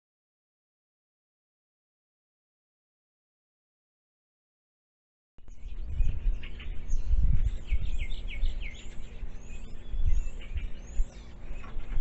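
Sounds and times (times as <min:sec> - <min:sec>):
birds chirping and calling: 0:05.4 - 0:12.0
gusty wind rumble: 0:05.4 - 0:12.0.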